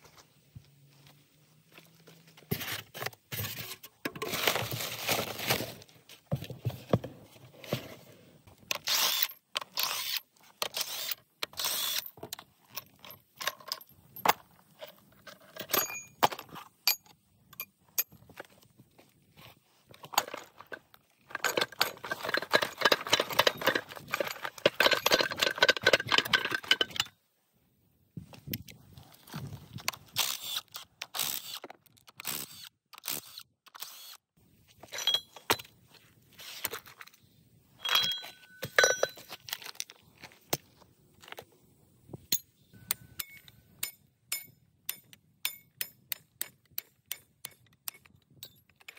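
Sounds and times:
steel parts clinking and scraping: 8.7 - 18.7, 19.9 - 27.1, 34.7 - 41.4, 42.2 - 48.9.

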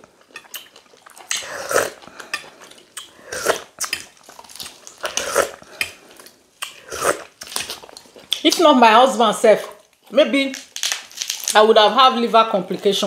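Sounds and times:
chewing chicken: 0.0 - 8.6.

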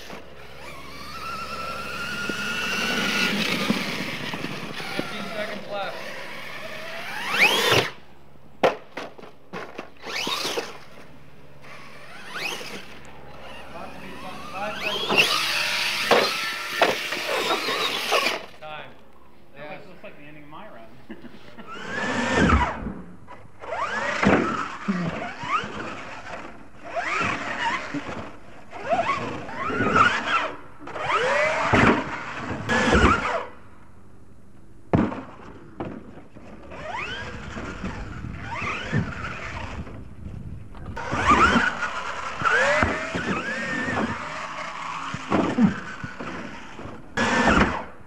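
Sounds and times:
toy truck motor whining: 0.0 - 8.0, 9.6 - 18.6, 21.6 - 33.6, 36.5 - 40.2, 40.8 - 48.0
toy truck thudding on dirt: 0.0 - 8.0, 8.6 - 13.7, 14.4 - 18.6, 22.0 - 33.5, 34.9 - 48.0.

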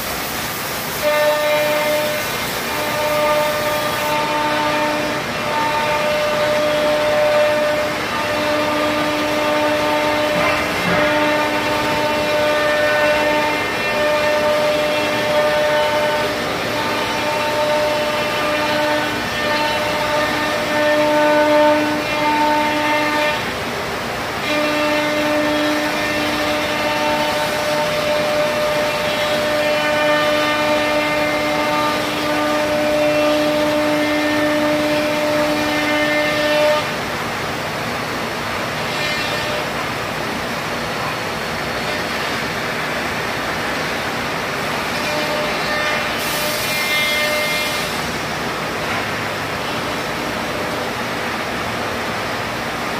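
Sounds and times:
machine whine: 0.0 - 23.6
machine hum: 0.0 - 52.9.

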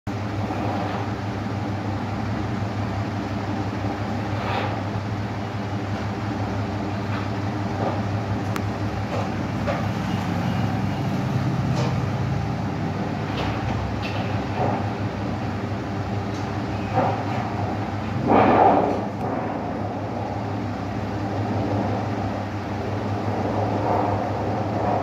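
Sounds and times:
vehicle engine humming: 0.1 - 25.0.

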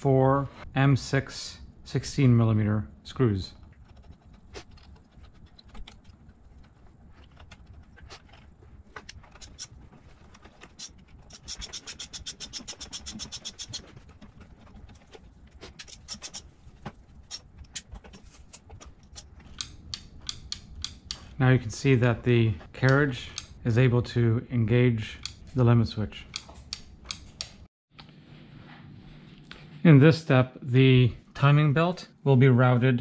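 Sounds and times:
rapid ratchet clicks: 9.3 - 9.7, 10.7 - 13.8, 15.8 - 16.4
screwdriver clicks and taps: 19.5 - 21.2.

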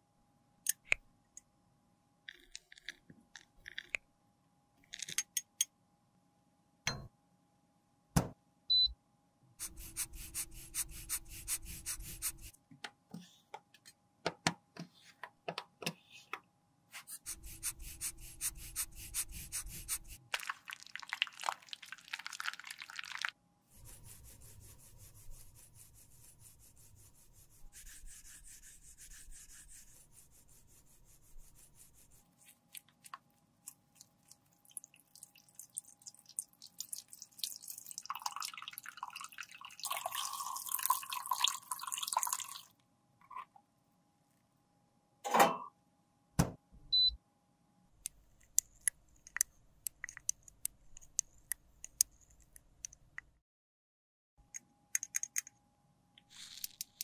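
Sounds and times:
brush scrubbing palette: 9.6 - 12.5, 17.0 - 20.2, 23.7 - 34.8
liquid pouring into metal tray: 20.4 - 23.3, 34.3 - 42.7.

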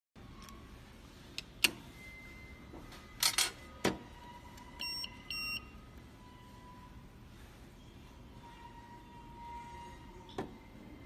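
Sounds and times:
short electronic beeps: 4.7 - 6.9.

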